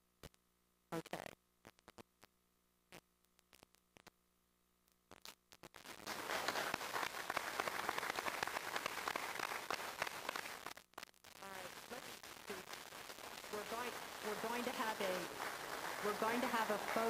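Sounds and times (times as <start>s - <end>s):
people talking: 1.0s - 1.3s, 11.4s - 12.7s, 13.5s - 17.0s
audience applauding: 6.1s - 10.7s, 13.2s - 17.0s.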